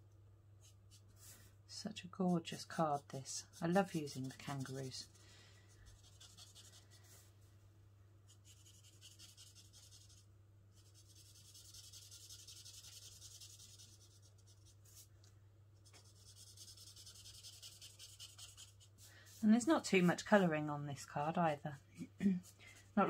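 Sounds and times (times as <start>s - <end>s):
marker scratching on cardstock: 3.4s - 5.0s, 5.9s - 6.9s, 8.3s - 10.2s, 10.8s - 15.1s, 15.8s - 19.4s.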